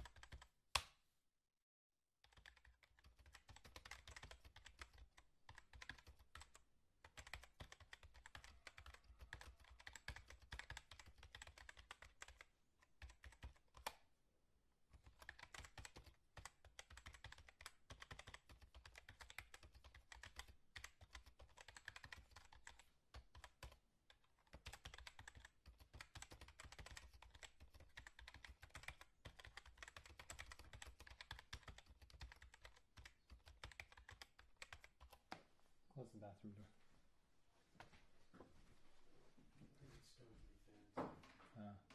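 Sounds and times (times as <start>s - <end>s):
fast typing on keyboard: 0.0s - 0.5s, 2.2s - 14.0s, 14.9s - 35.2s.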